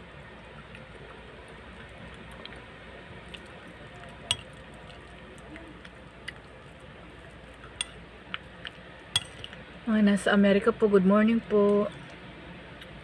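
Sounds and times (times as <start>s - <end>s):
soft chewing: 0.6s - 9.6s
metal spoon clinking ceramic bowl: 9.2s - 9.6s.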